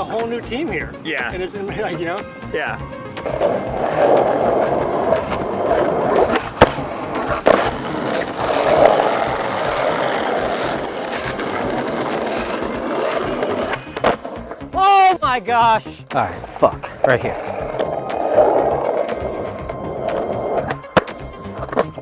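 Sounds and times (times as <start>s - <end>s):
skateboard wheels rolling on asphalt: 0.0s - 14.7s, 16.7s - 22.0s
skateboard knocks: 3.7s - 14.2s.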